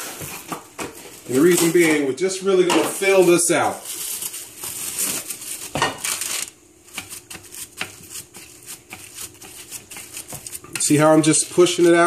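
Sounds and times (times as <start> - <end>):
plastic wrap crinkling: 3.0 - 6.6.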